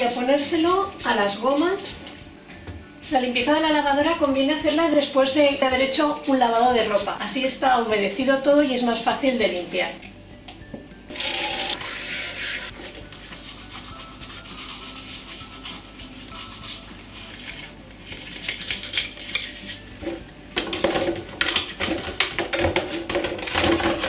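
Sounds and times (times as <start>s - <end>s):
tap water running into basin: 11.1s - 12.7s
toothbrush scrubbing plastic: 13.1s - 19.8s.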